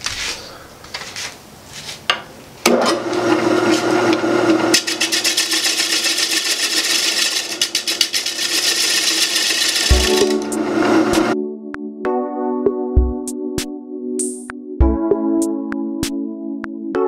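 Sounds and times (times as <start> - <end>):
lathe motor hum: 2.7 - 11.4.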